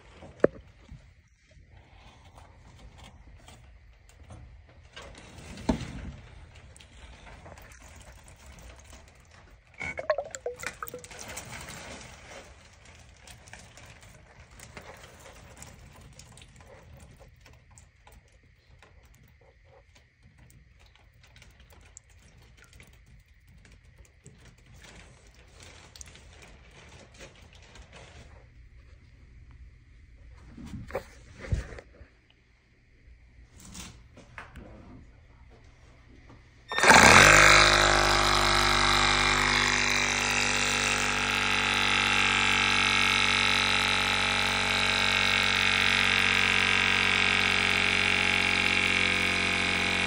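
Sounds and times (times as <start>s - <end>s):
low steady hum: 6.6s - 11.7s.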